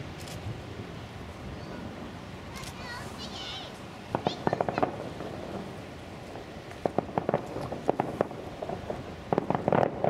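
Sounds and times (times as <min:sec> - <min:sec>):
fireworks cracking and popping: 0:02.5 - 0:10.0.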